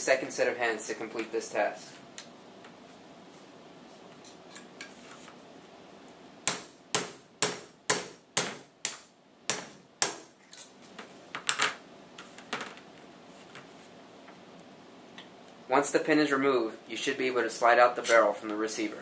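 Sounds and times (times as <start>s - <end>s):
hammer striking metal punch: 6.4s - 10.3s.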